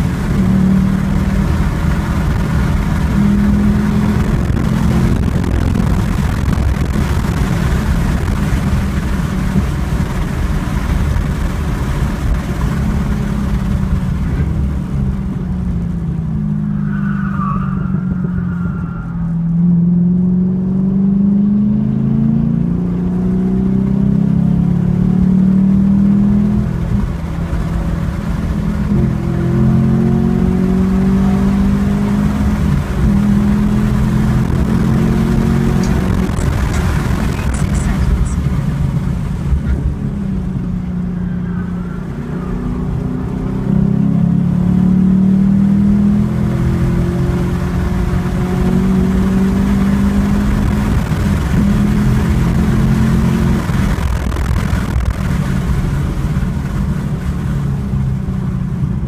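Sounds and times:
car engine at full throttle: 0:00.0 - 0:59.0
tyre squeal: 0:16.6 - 0:19.5.

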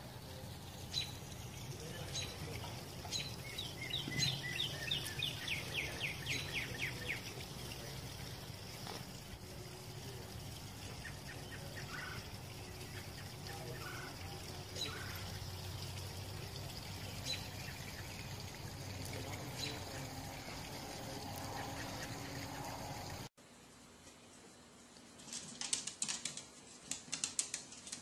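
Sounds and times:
birds chirping: 0:00.0 - 0:23.3.

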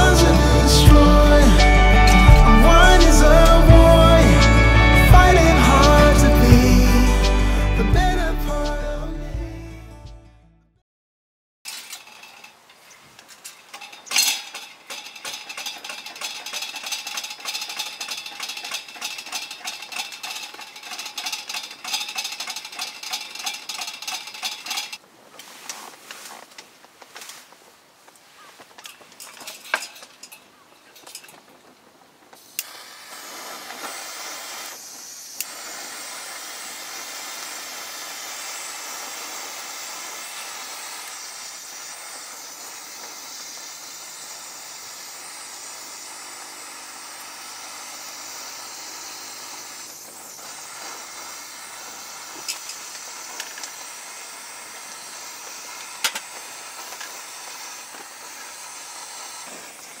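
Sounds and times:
gas torch flame hissing: 0:32.4 - 1:00.0.

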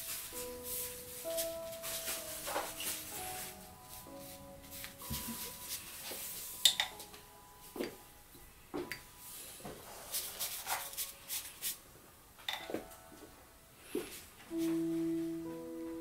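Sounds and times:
brush rustling on paper: 0:00.0 - 0:06.6, 0:09.2 - 0:11.8.

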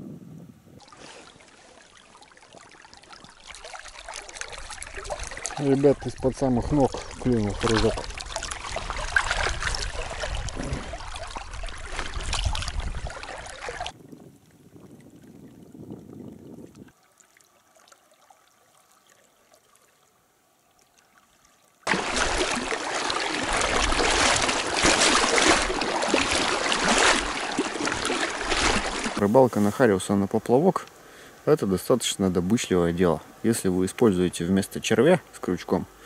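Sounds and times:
river water rushing: 0:01.0 - 0:13.9, 0:21.9 - 0:29.2.

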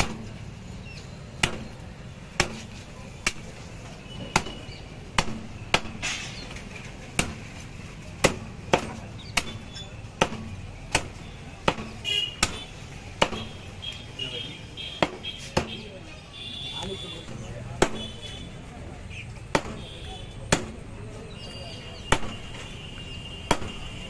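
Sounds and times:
knife chopping on wooden block: 0:02.4 - 0:03.5, 0:08.2 - 0:13.6, 0:15.0 - 0:15.9, 0:19.5 - 0:19.9, 0:23.5 - 0:23.9.

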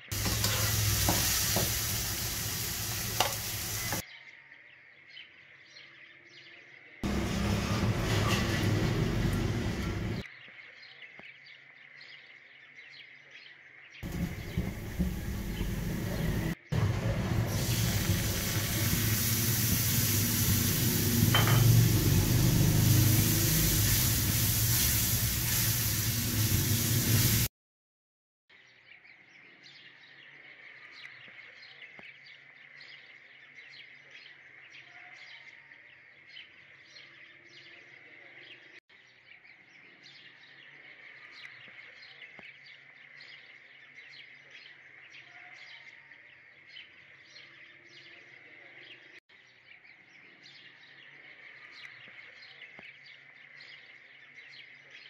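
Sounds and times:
batter sizzling in a frying pan: 0:00.1 - 0:04.0, 0:14.0 - 0:27.5
birds chirping: 0:00.1 - 0:04.0, 0:14.0 - 0:27.4.

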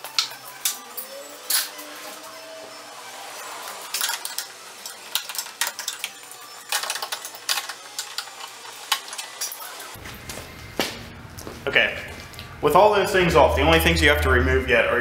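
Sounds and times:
metallic clicking and clinking: 0:03.9 - 0:10.0.

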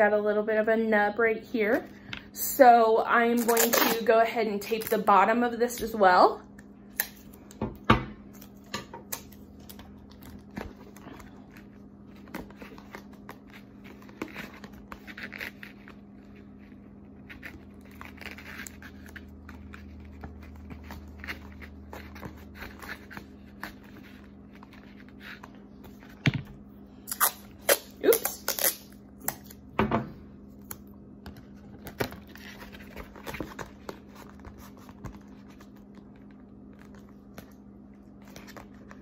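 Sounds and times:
tape tearing: 0:03.4 - 0:04.1, 0:27.1 - 0:29.5.

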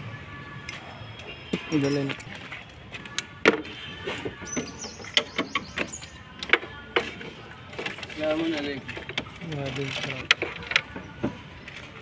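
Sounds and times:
plastic parts clicking and knocking: 0:04.6 - 0:11.9.

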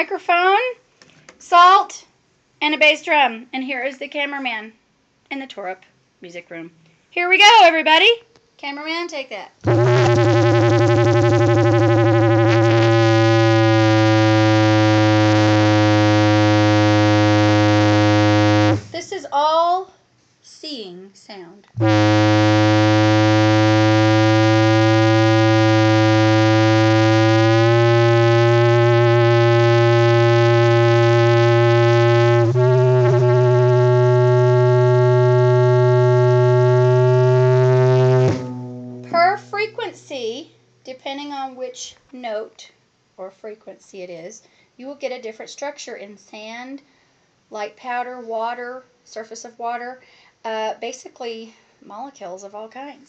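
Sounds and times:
electronic feedback tone: 0:09.7 - 0:19.0, 0:21.8 - 0:40.2.

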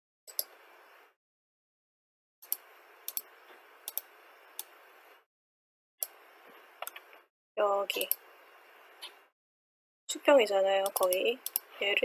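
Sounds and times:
computer mouse clicking: 0:00.3 - 0:00.6, 0:02.4 - 0:04.8, 0:06.8 - 0:07.2, 0:07.9 - 0:08.2, 0:10.8 - 0:11.7.

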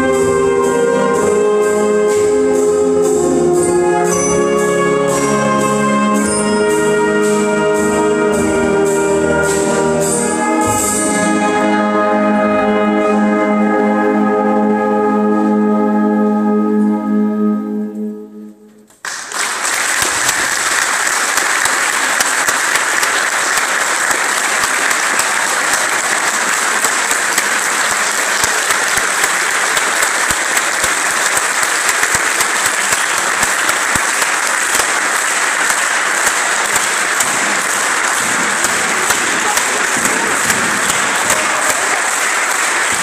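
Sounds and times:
wind band held chord: 0:00.0 - 0:18.6
audience applause: 0:19.0 - 0:43.0.

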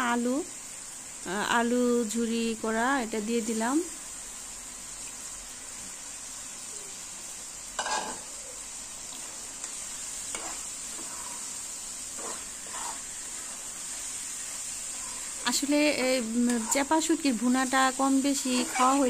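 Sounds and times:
potato sizzling in hot oil: 0:00.0 - 0:19.0
metal spatula scraping: 0:09.1 - 0:17.6, 0:18.2 - 0:19.0.

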